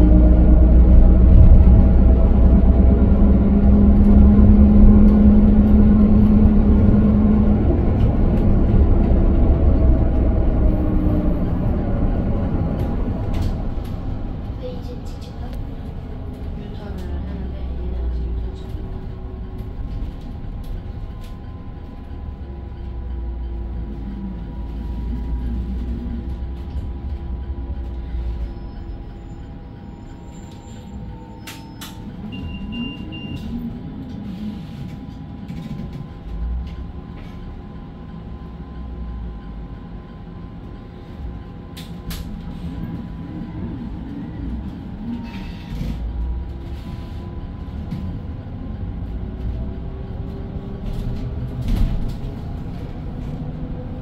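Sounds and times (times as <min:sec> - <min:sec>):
low road rumble: 0:00.0 - 0:54.0.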